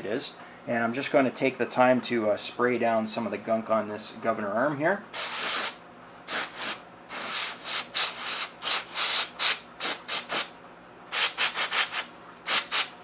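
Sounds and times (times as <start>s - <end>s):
aerosol spray hissing squirts: 5.2s - 10.5s, 11.1s - 12.9s.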